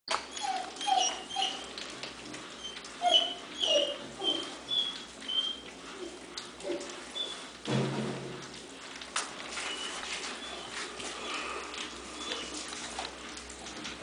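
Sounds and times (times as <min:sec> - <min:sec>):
puppies whimpering and squeaking: 0:00.1 - 0:07.6, 0:09.5 - 0:13.2.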